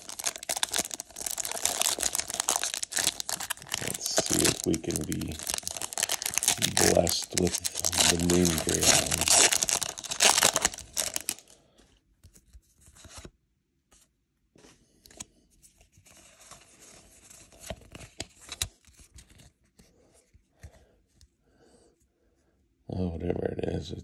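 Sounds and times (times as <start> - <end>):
foil wrapper tearing: 0.0 - 11.5
wrapper crinkling: 0.0 - 11.6.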